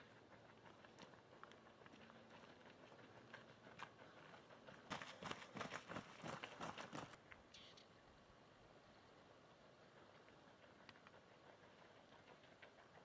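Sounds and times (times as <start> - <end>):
running footsteps on dirt: 0.7 - 7.2.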